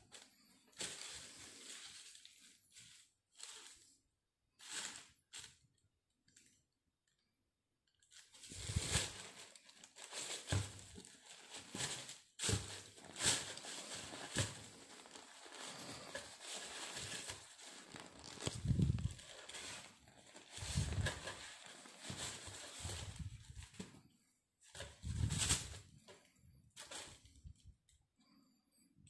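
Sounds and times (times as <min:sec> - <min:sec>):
tissue paper crinkling: 0:00.1 - 0:03.9, 0:08.1 - 0:23.9, 0:24.7 - 0:25.9.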